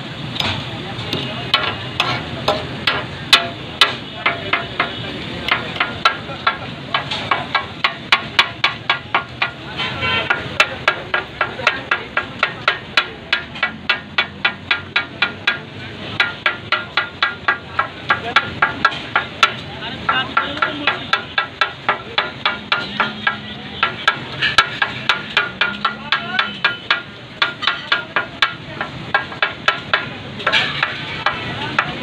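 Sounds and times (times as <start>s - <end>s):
steel blades clacking on griddle: 1.5s - 4.9s, 20.4s - 32.0s.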